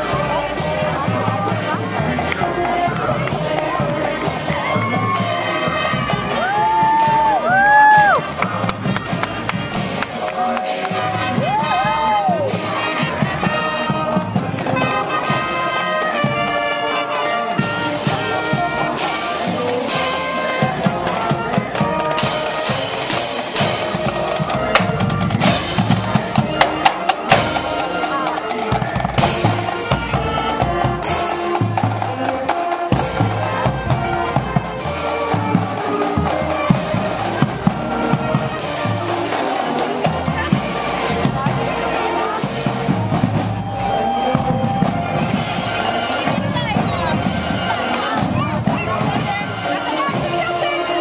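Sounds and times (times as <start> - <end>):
bass drums beating: 0.0 - 10.2, 39.9 - 49.6
brass instruments playing tune: 0.0 - 51.0
marching drums beat: 0.0 - 51.0.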